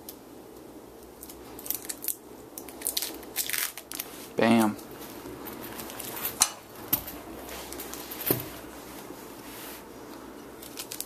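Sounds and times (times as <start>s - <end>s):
rustle of handling: 3.5s - 11.0s.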